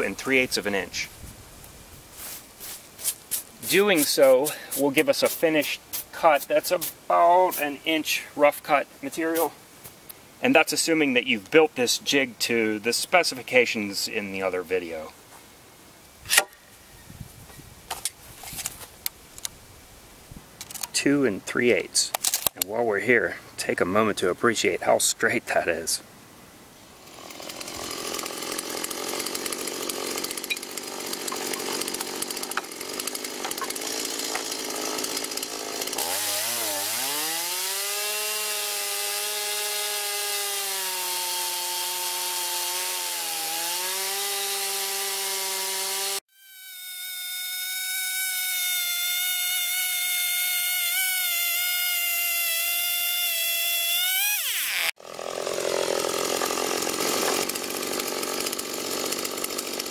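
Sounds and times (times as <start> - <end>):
chainsaw cutting log: 2.7 - 8.0, 16.3 - 16.6, 26.9 - 59.9.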